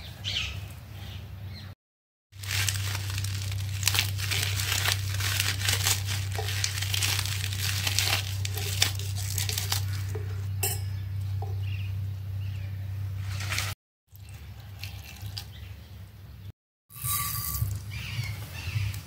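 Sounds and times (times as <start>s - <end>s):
leaves tearing and crackling: 2.4s - 10.4s, 13.2s - 13.8s
steady low hum: 2.4s - 19.0s.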